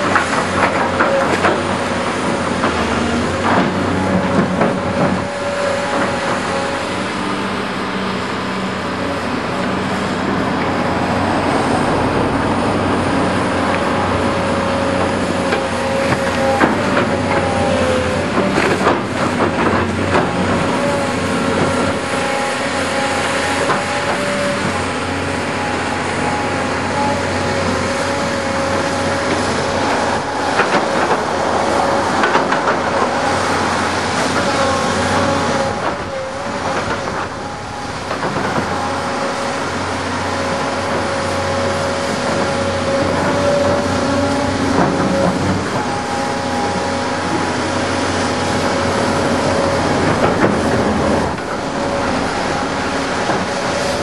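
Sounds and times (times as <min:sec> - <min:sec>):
diesel engines whining: 0:00.0 - 0:54.0
excavator buckets knocking and clanking: 0:00.0 - 0:54.0.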